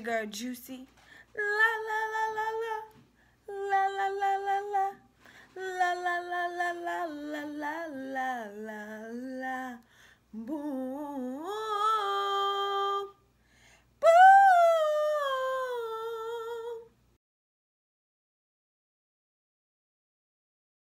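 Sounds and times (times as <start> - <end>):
woman singing a cappella: 0.0 - 13.3, 14.0 - 17.0.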